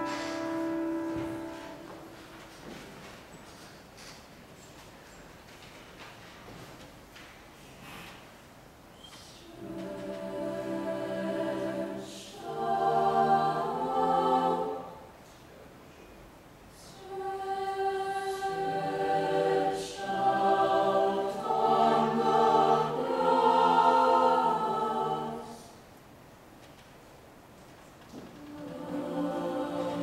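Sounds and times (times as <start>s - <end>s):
choir singing sustained chords: 0.0s - 2.0s, 9.5s - 15.2s, 16.8s - 25.9s, 28.4s - 30.0s.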